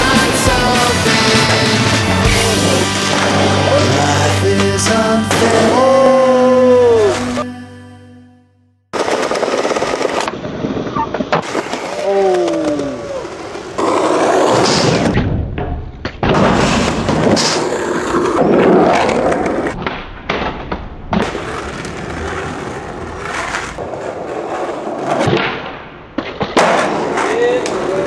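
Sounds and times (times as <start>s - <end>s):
skateboard wheels on concrete: 0.0s - 7.2s, 8.9s - 28.0s
skateboard clatter and scrapes: 8.9s - 15.2s, 16.1s - 28.0s.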